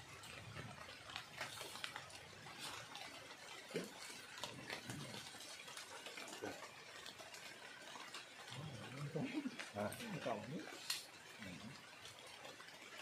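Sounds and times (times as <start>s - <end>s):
rain hissing on river: 0.0s - 13.0s
scattered drips: 0.0s - 13.0s.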